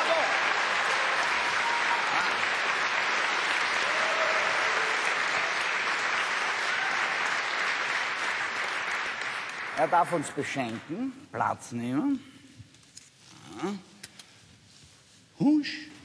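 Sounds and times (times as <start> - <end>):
audience applauding: 0.0 - 11.0.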